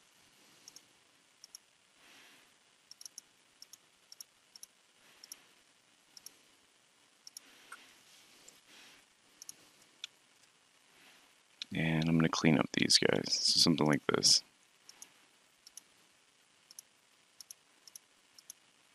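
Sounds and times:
computer mouse clicks: 1.4 - 1.6, 2.9 - 5.4, 7.3 - 7.8, 15.7 - 15.9, 16.7 - 18.6.

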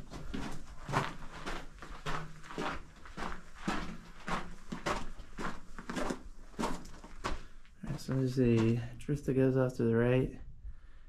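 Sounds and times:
footsteps on loose rock and dirt: 0.0 - 8.8.

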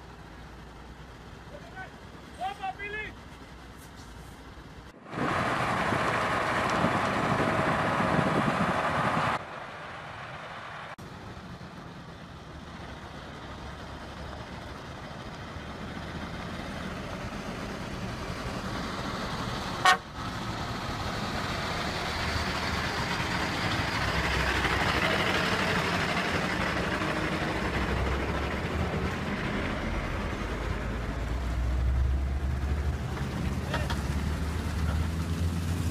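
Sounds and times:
truck diesel engine passing: 0.0 - 35.9
loud horn-like tone: 19.8 - 20.1.

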